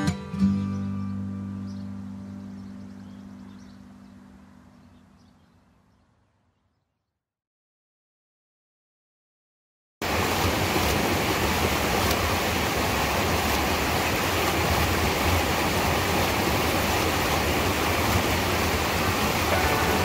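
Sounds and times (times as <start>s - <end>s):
creek water rushing over boulder: 10.0s - 20.0s.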